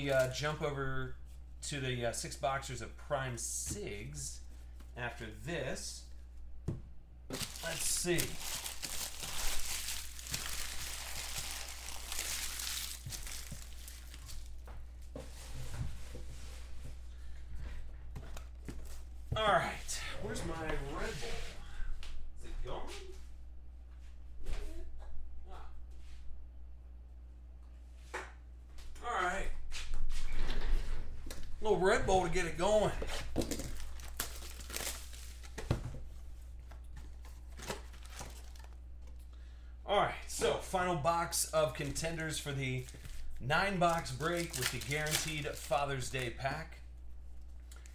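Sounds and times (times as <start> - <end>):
foil wrappers crinkling: 0.0 - 0.6, 7.3 - 14.7, 32.4 - 35.8, 37.0 - 39.3, 41.6 - 46.7
cardboard tearing: 7.3 - 14.5, 33.1 - 35.6, 43.8 - 45.8
cardboard rustling and scraping: 7.3 - 17.0.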